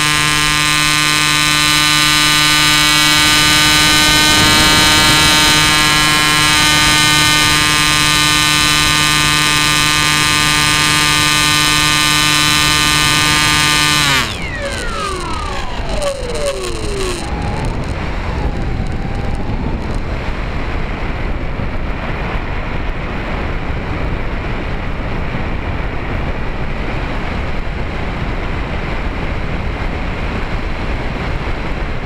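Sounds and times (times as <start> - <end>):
electric motor and propeller whine: 0.0 - 21.7.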